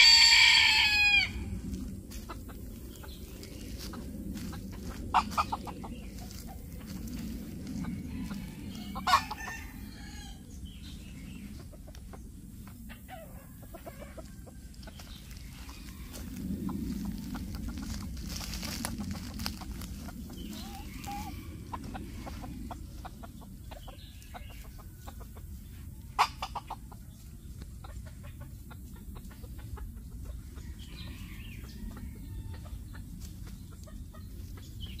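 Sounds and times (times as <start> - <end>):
dry leaves crackling: 0.0 - 10.2, 14.0 - 23.1
chicken clucking: 2.1 - 10.3, 11.2 - 35.0.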